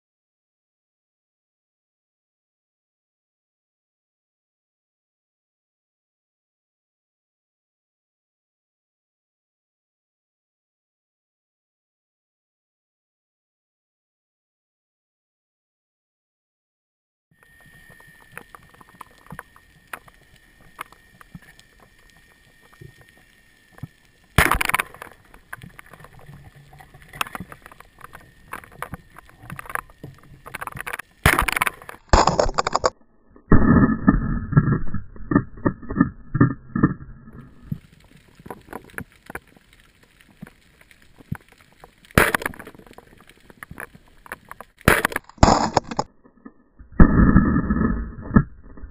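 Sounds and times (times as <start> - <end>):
speargun cracks underwater: 24.4 - 32.9, 41.2 - 46.1
muffled underwater rumbling: 33.4 - 39.7, 46.8 - 48.9
clicks and knocks: 42.2 - 46.1.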